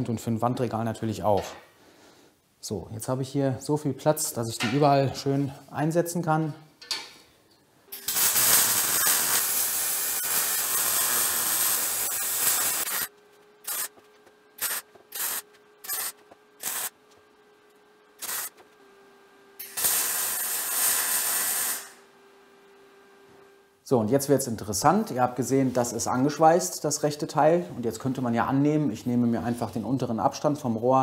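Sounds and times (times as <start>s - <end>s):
faint steady hum: 0.0s - 19.9s, 21.8s - 31.0s
welding arc crackling: 7.9s - 18.8s, 19.6s - 22.1s.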